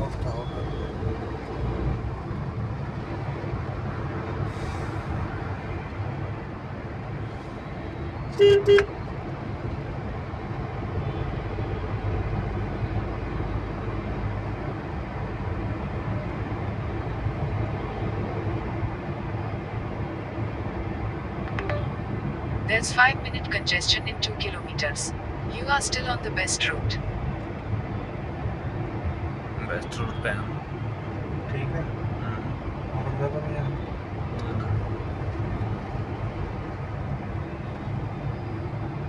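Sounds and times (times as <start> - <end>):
car road and engine rumble: 0.0 - 39.0
car horn beeping: 8.4 - 8.9.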